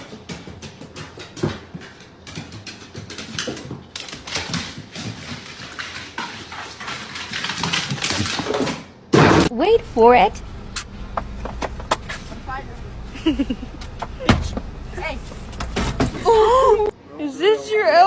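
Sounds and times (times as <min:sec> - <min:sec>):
dog claws on wooden stairs: 0:00.0 - 0:08.8.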